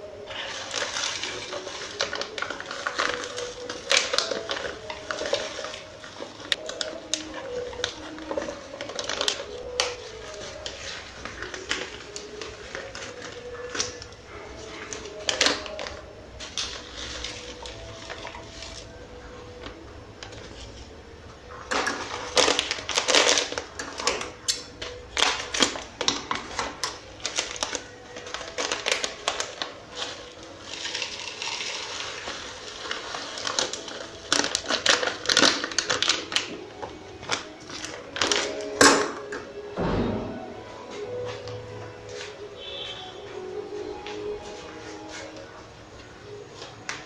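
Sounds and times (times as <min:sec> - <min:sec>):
plastic bag crinkling: 0:00.0 - 0:21.0, 0:21.6 - 0:39.6
scissors cutting plastic: 0:00.2 - 0:19.0, 0:21.7 - 0:39.6.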